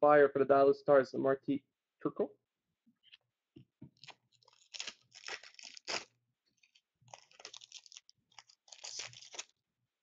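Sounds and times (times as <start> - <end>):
cards rustling: 4.0 - 9.5
plastic wrappers crinkling: 4.0 - 9.6.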